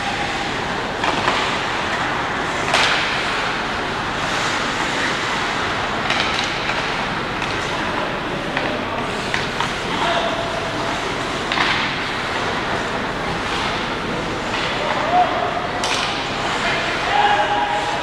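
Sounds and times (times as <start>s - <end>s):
hockey sticks clacking on puck: 1.0s - 1.6s, 2.6s - 3.4s, 4.3s - 7.8s, 8.5s - 10.3s, 11.4s - 12.4s, 13.4s - 17.3s.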